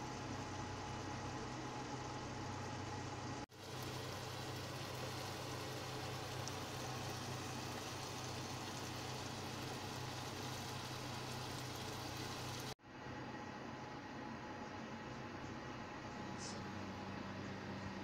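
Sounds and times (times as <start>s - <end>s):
meat sizzling in a pan: 3.5s - 12.8s.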